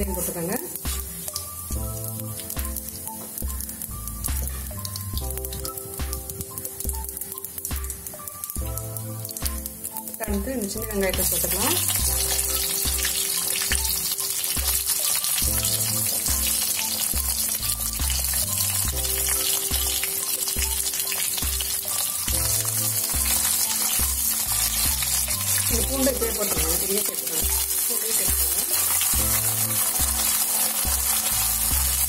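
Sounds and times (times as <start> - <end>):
shallots sizzling in oil: 0.0 - 32.0
background music with bass beat: 0.9 - 9.8, 17.2 - 25.8, 28.5 - 32.0.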